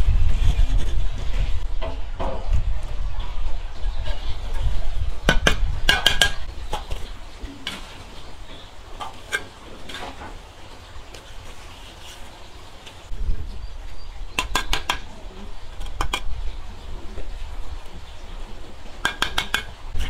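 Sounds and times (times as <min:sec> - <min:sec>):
cookware and utensils clinking: 0:19.0 - 0:20.0.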